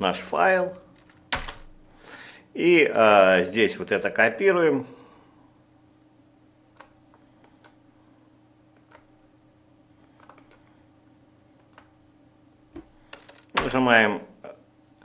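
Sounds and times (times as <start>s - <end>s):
low steady hum: 0.0s - 15.0s
keyboard and mouse clicks: 8.8s - 9.1s, 10.0s - 10.6s, 11.6s - 11.9s.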